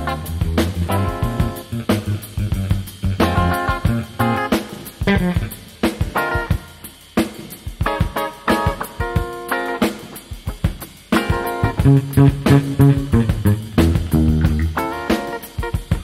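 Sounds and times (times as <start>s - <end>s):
electric bass: 0.0s - 5.7s, 11.5s - 15.1s
electric guitar chords: 0.0s - 7.1s, 7.8s - 16.0s
drum kit: 0.0s - 16.0s.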